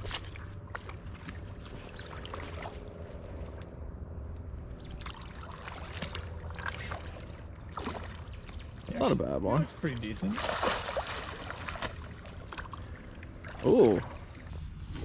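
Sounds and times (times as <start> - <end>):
person wading in water: 0.0 - 3.6, 4.9 - 8.8, 10.2 - 15.0
fish thrashing in water: 10.3 - 14.5.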